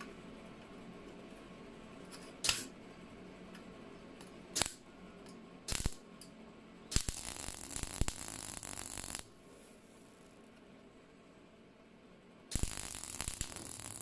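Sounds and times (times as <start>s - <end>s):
welder crackling zaps: 4.5s - 4.8s, 5.7s - 6.0s, 6.9s - 9.4s, 12.5s - 14.0s.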